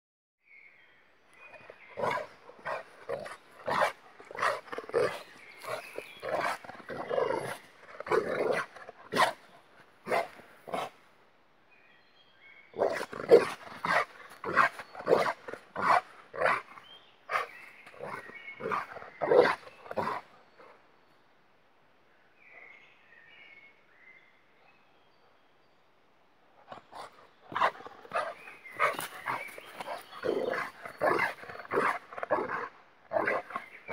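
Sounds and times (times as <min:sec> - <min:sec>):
large dog barking: 0:02.0 - 0:09.4, 0:10.0 - 0:10.9, 0:12.8 - 0:16.7, 0:27.5 - 0:33.9.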